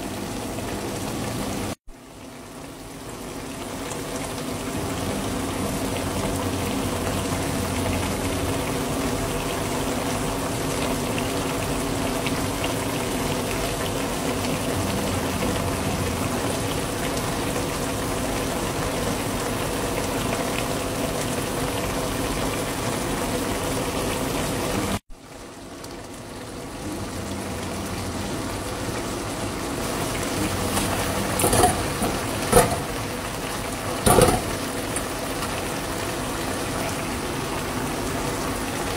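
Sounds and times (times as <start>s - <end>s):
broth bubbling in a wok: 0.0s - 38.9s
short clatters in a pan: 30.7s - 33.0s, 34.0s - 35.6s.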